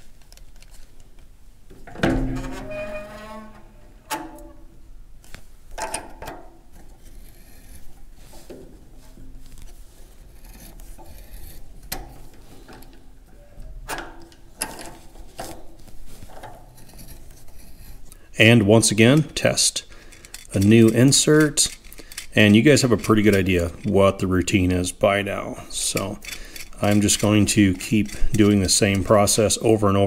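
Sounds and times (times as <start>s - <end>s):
tap wrench clicking and scraping: 9.5s - 13.0s, 13.9s - 18.2s, 19.1s - 24.7s, 25.6s - 29.6s.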